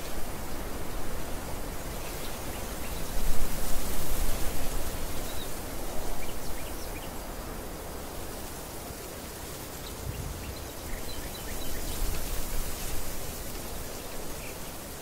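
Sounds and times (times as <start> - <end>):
wind rustling barley stalks: 0.0 - 15.0
wind buffeting microphone: 9.8 - 13.4.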